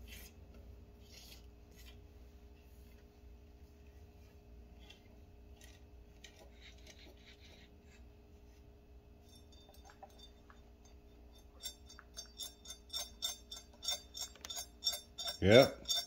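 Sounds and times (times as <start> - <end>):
rubbing and scraping of trap: 5.5 - 8.0, 11.4 - 16.0.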